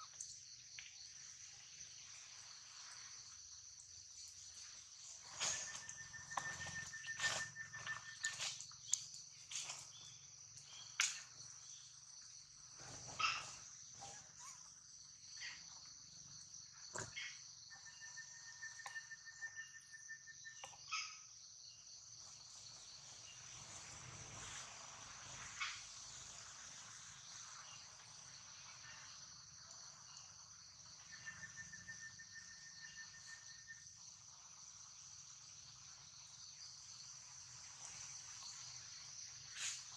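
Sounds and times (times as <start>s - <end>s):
high-pitched insect chorus: 0.0s - 39.9s
rapidly pulsing insect trill: 0.0s - 39.9s.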